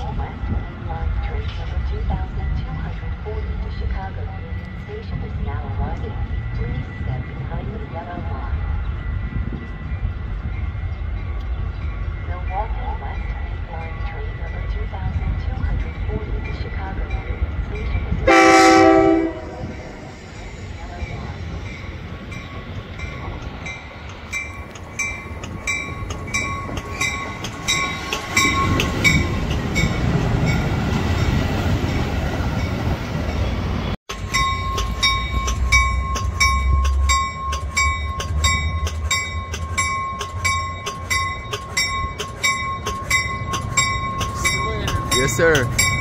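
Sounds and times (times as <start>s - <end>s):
train rumbling: 0.0s - 46.0s
train horn blast: 18.2s - 20.1s
bell dinging: 21.0s - 31.4s, 34.1s - 46.0s.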